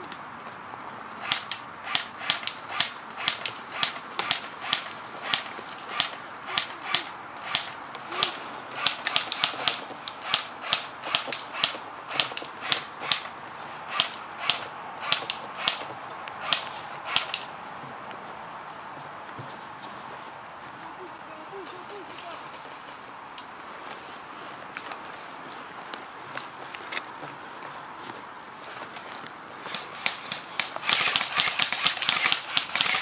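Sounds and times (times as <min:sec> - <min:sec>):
sharp crisp clicks: 0:01.2 - 0:13.3, 0:13.9 - 0:17.6, 0:29.6 - 0:33.0.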